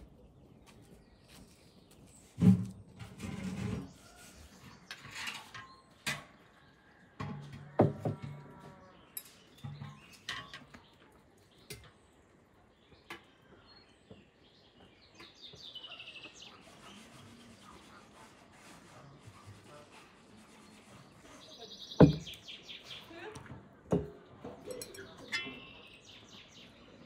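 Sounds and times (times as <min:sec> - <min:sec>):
bird chirp: 0:08.7 - 0:18.1, 0:20.5 - 0:23.3, 0:24.4 - 0:27.0
glass jars clinking: 0:24.0 - 0:25.8.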